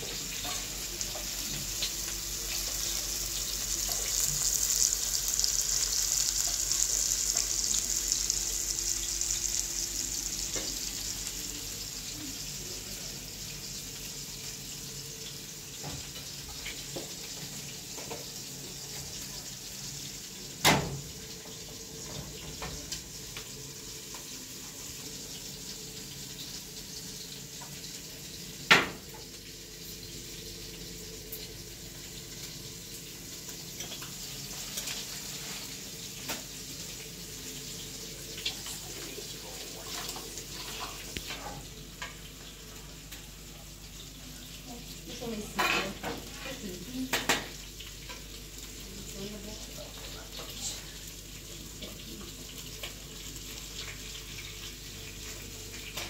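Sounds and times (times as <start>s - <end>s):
gas stove hissing: 0.0s - 56.0s
pots and pans clattering: 39.7s - 42.3s, 45.5s - 46.3s.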